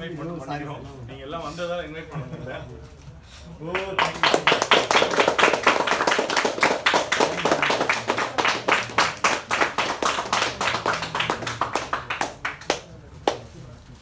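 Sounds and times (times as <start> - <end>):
people clapping: 3.6 - 13.7.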